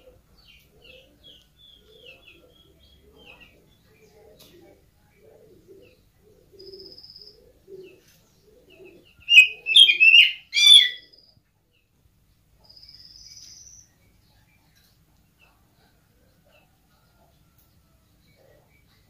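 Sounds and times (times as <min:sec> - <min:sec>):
harsh bird calls: 0:08.8 - 0:11.2.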